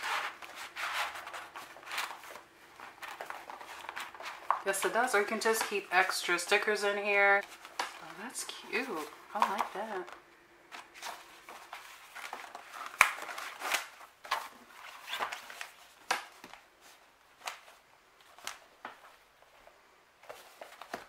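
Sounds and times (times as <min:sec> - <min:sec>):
notebook pages rustling: 0:00.0 - 0:21.0.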